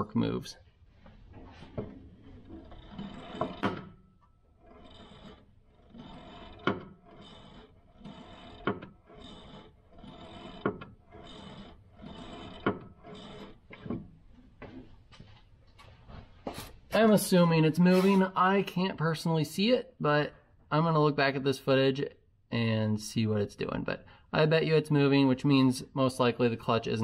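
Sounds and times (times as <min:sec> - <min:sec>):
clutch pedal creaking and clicking: 0:05.9 - 0:09.6.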